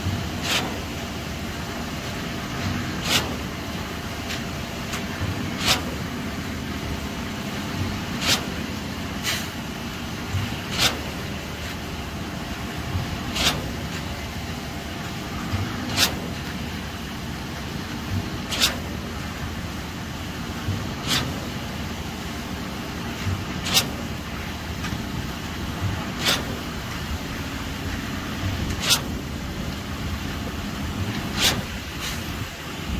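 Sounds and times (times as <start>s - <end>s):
concrete pump running: 0.0s - 32.9s.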